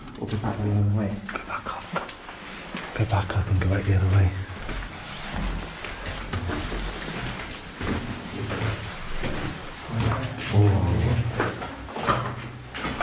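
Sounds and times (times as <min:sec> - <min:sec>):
footsteps on stairs: 0:04.5 - 0:13.0.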